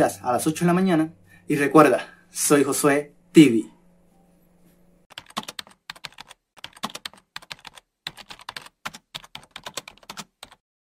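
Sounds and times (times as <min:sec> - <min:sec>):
keyboard typing clicks: 0:05.1 - 0:10.6.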